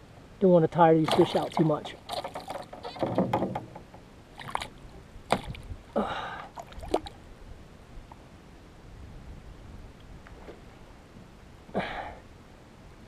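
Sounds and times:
fish thrashing in water: 1.0s - 3.2s, 4.3s - 5.7s, 6.4s - 7.2s.

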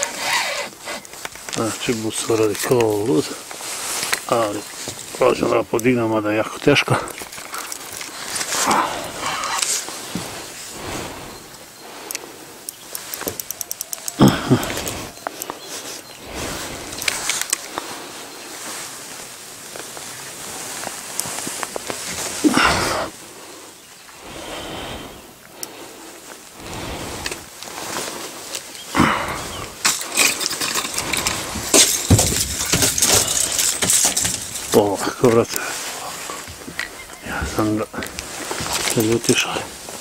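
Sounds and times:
rustling handling noise: 0.0s - 24.2s, 25.4s - 40.0s
clicks: 12.0s - 15.6s.

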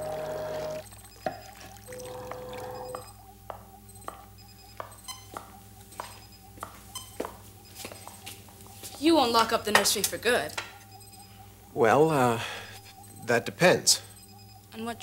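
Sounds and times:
brief steady tone: 0.0s - 5.3s
steady electronic hum: 0.0s - 15.0s
footsteps on hard floor: 4.8s - 9.1s.

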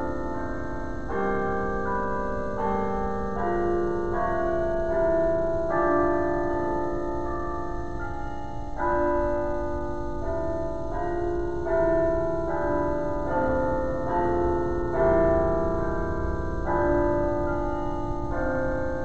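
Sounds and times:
low steady hum: 0.0s - 19.0s
slow instrumental chords: 0.0s - 19.0s.

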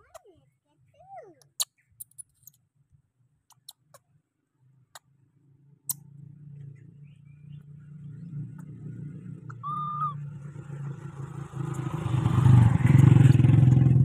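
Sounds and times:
sharp clicks: 1.4s - 2.6s
distant vehicle engine hum: 3.9s - 14.0s.

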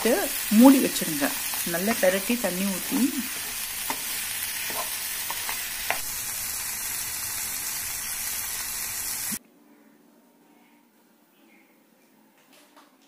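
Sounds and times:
food sizzling in a frying pan: 0.0s - 9.4s.

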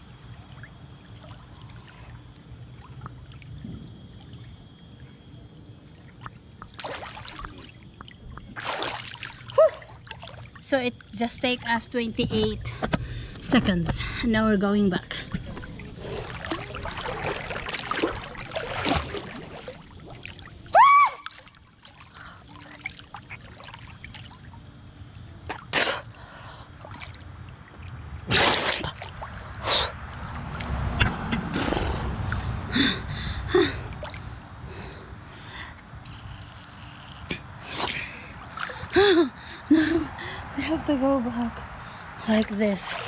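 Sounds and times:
water splashing around swimmer: 0.0s - 11.9s, 15.1s - 32.6s, 37.2s - 39.2s, 42.3s - 43.0s.

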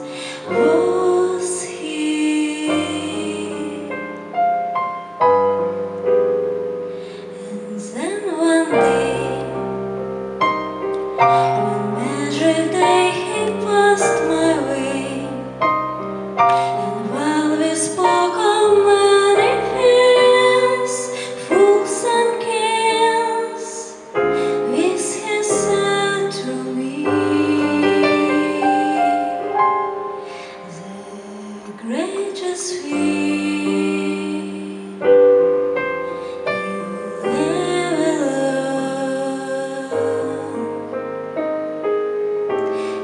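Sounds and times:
woman singing: 0.0s - 4.3s, 7.1s - 9.9s, 11.2s - 15.6s, 16.5s - 29.7s, 30.3s - 35.4s, 36.1s - 41.1s
piano accompaniment: 0.0s - 43.0s.

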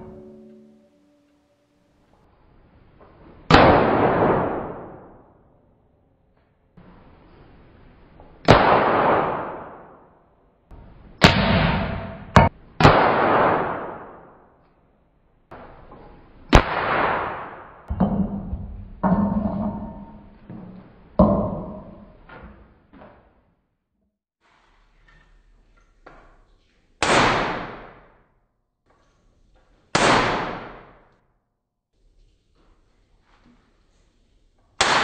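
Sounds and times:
hammer striking steel anvil: 11.2s - 12.5s, 17.9s - 20.4s.

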